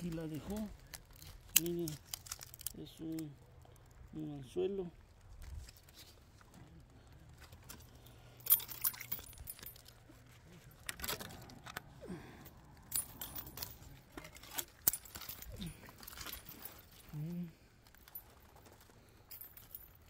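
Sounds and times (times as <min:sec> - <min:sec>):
dry branches clicking and rattling: 0:00.0 - 0:20.0.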